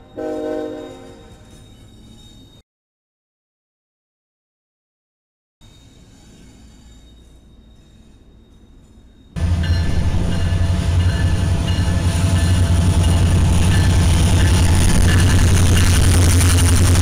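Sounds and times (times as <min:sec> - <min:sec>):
rail noise: 0:00.0 - 0:02.6, 0:05.6 - 0:17.0
diesel locomotive engine rumble: 0:09.4 - 0:17.0.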